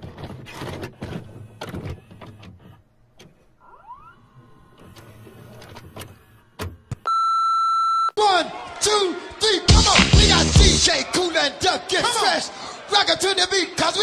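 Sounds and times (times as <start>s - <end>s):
motor whine: 3.6s - 6.9s.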